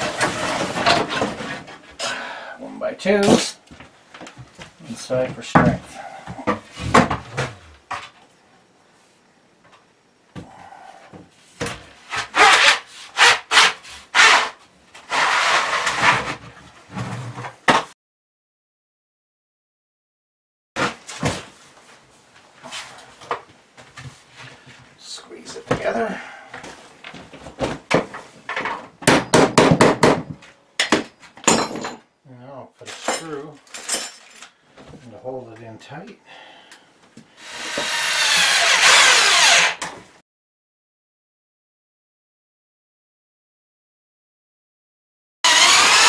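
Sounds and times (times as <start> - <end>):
wood scraping on wood: 12.1 - 16.4
hammering sharp knocks: 29.0 - 31.1.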